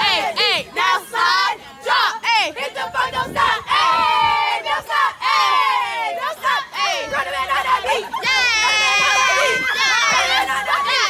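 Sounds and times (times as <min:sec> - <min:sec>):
women shouting and whooping: 0:03.3 - 0:11.0.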